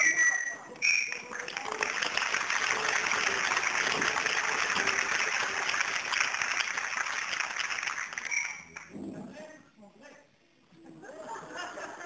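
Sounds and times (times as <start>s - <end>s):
audience applauding: 0.9s - 8.9s.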